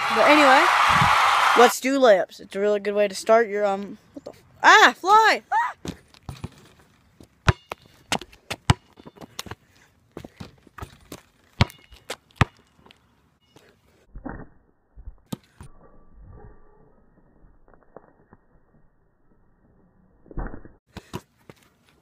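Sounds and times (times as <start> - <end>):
basketball bouncing and hitting rim: 5.8 - 6.7, 7.4 - 9.6, 10.2 - 12.7.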